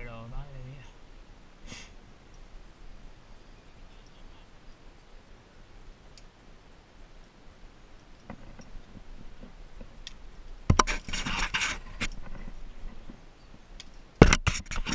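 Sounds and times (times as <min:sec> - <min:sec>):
faint clicks: 0:06.1 - 0:06.4, 0:13.0 - 0:14.9
scraping and rustling: 0:10.7 - 0:13.2, 0:14.2 - 0:14.9.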